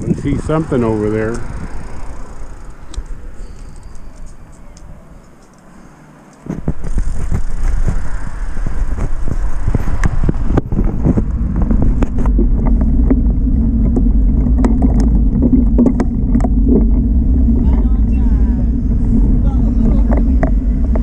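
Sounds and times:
wind buffeting microphone: 0:00.0 - 0:05.4, 0:06.4 - 0:21.0
bike clicks and knocks: 0:00.8 - 0:17.8.

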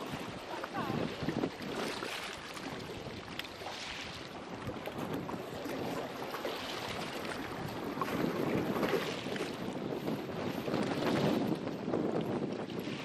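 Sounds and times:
sea water lapping: 0:00.0 - 0:13.0
steady wind: 0:00.0 - 0:13.0.

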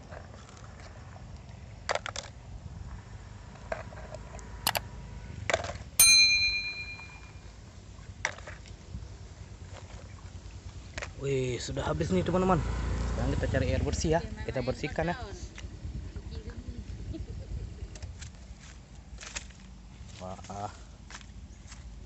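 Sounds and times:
loud ringing clink: 0:06.0 - 0:07.5.

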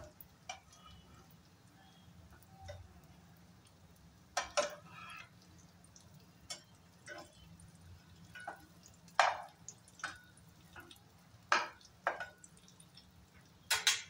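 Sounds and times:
metal spatula scraping frying pan: 0:04.4 - 0:05.3.

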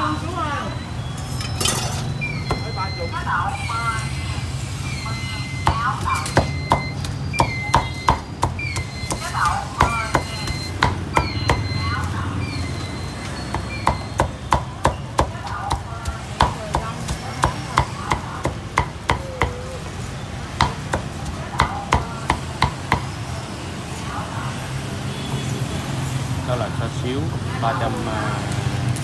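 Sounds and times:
cleaver chopping meat: 0:05.6 - 0:12.2, 0:13.3 - 0:19.8, 0:20.6 - 0:23.2.

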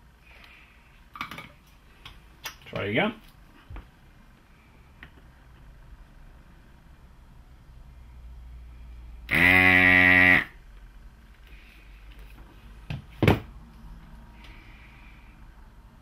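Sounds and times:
vacuum pump buzzing: 0:09.3 - 0:10.6.

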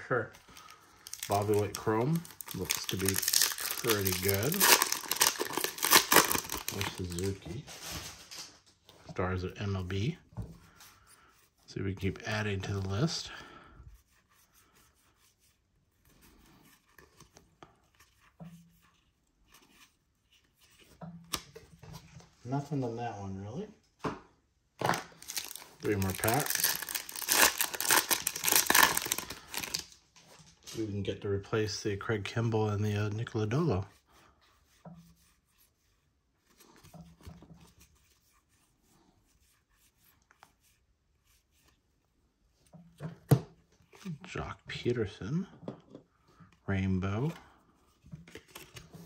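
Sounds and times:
cards rustling and clicking: 0:00.3 - 0:08.5, 0:24.8 - 0:30.0, 0:48.0 - 0:49.0.

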